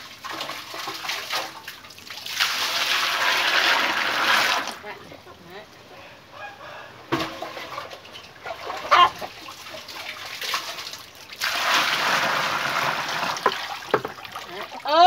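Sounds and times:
water splashing into basket: 0.0 - 4.8, 7.1 - 15.0
water trickling: 7.4 - 15.0
knocks: 13.4 - 14.2.

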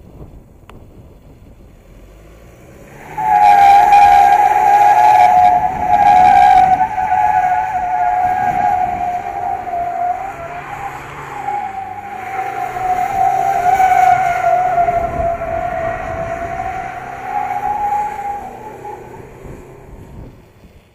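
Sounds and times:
diesel engine running low: 0.0 - 20.9
tyres squealing: 2.9 - 19.9.

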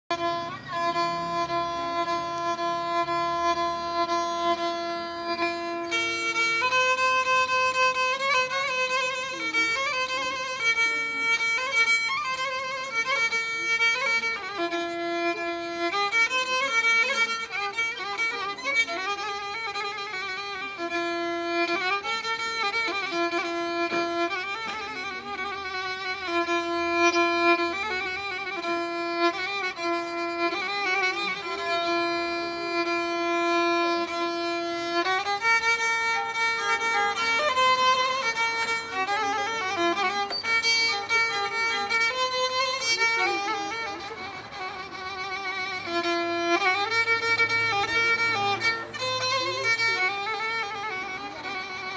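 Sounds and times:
solo violin folk melody: 0.0 - 51.9.

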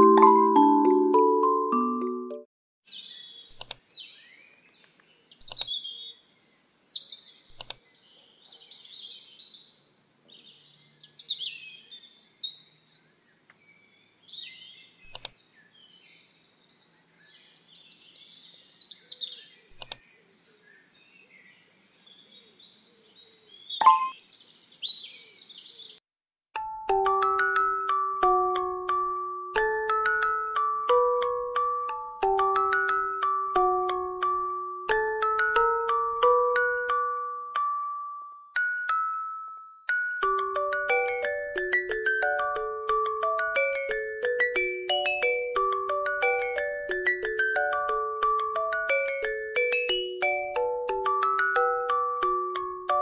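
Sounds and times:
songbirds chirping: 2.8 - 26.0, 40.2 - 53.0
sharp clicks: 3.6 - 3.8, 4.8 - 5.7, 7.5 - 7.8, 15.1 - 15.4, 19.8 - 20.0.

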